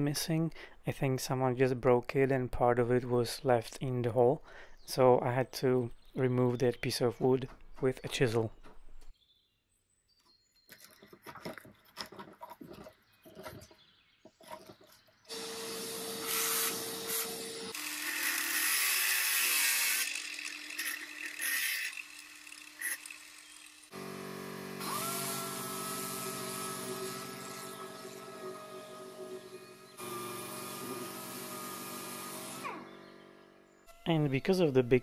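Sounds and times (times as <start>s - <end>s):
angle grinder grinding wood: 14.4s - 35.0s
air sander whine: 15.3s - 34.4s.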